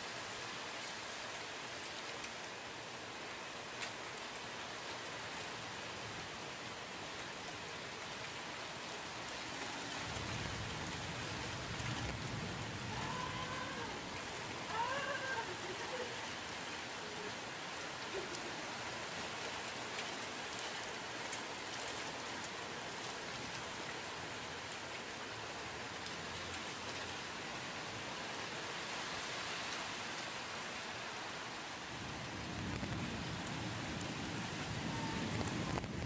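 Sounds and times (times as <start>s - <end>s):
steady rain: 0.0s - 36.0s
thunder rumble: 32.2s - 36.0s.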